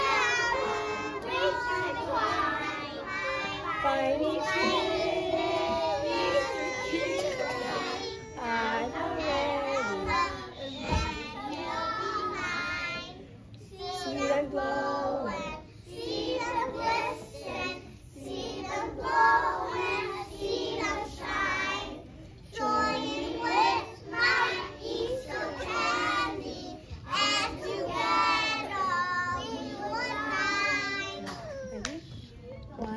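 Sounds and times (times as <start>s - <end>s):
children singing: 0.0s - 31.5s.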